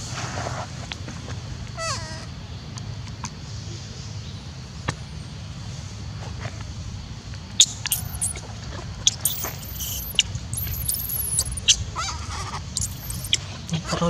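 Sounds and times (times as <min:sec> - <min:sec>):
infant monkey squealing: 0:07.6 - 0:08.4, 0:09.1 - 0:13.4.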